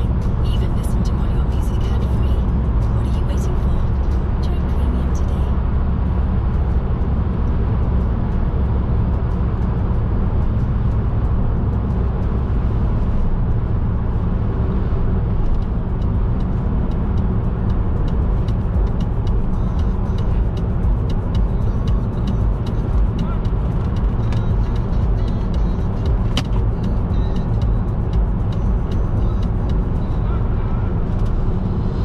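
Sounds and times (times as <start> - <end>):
car engine and tyres rumbling: 0.0 - 32.0.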